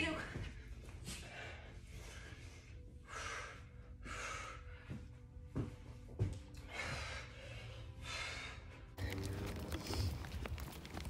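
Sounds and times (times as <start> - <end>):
faint music: 0.0 - 11.0
woman breathing hard: 0.6 - 5.4, 6.5 - 9.0.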